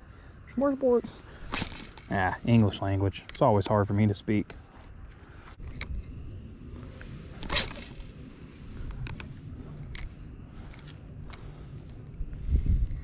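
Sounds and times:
wind rumbling on microphone: 4.9 - 13.0
fishing line whizzing off reel: 7.2 - 8.2.

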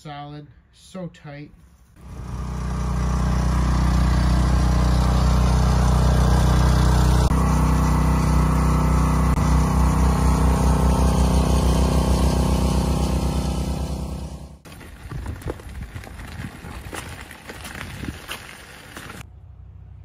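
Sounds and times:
small engine idling: 2.0 - 14.6.

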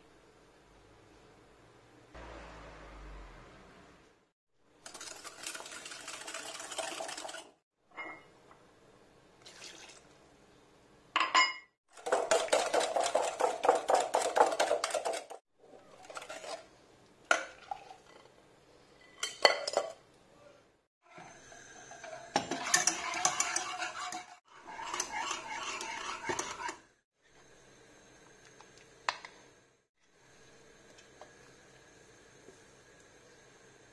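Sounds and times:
whisk in saucepan: 4.8 - 7.6, 11.9 - 16.7, 21.1 - 27.0
whisk clinking in glass bowl: 22.3 - 26.8.

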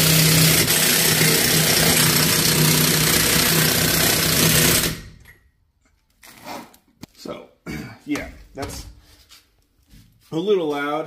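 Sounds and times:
impact wrench hammering: 0.0 - 5.4.

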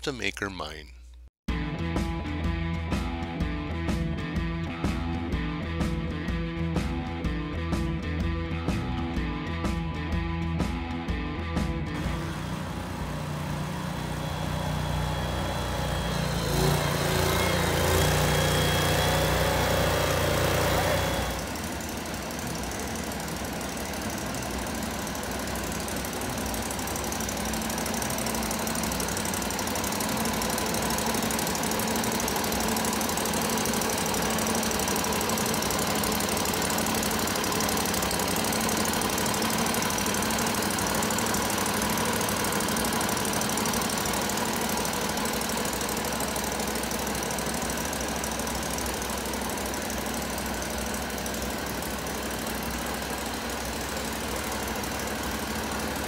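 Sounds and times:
engine running steadily: 2.6 - 56.0.

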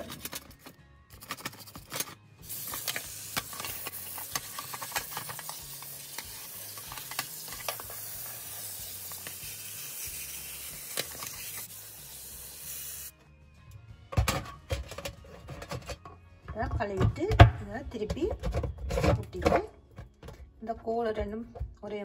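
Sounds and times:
toothbrush scrubbing plastic filter: 0.0 - 11.9
tap water running: 2.5 - 13.1.

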